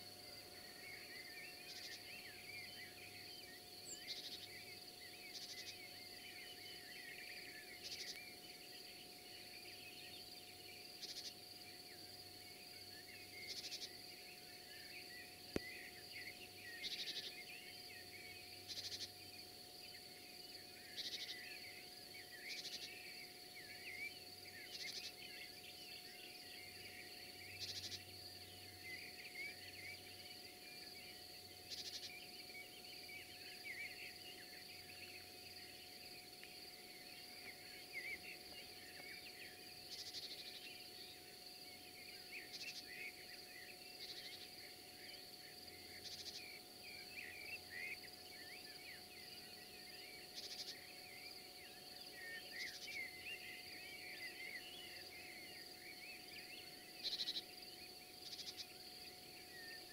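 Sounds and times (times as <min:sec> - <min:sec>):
crickets chirping: 0:00.0 - 0:59.9
short scratchy insect calls: 0:00.9 - 0:04.6, 0:05.2 - 0:06.3, 0:07.4 - 0:08.4, 0:11.0 - 0:11.4, 0:13.3 - 0:14.0, 0:15.0 - 0:17.4, 0:18.1 - 0:19.2, 0:20.9 - 0:21.8, 0:22.4 - 0:24.0, 0:24.6 - 0:25.6, 0:26.2 - 0:30.3, 0:31.1 - 0:48.1, 0:50.3 - 0:51.1, 0:52.4 - 0:53.2, 0:56.2 - 0:57.5, 0:58.1 - 0:58.8.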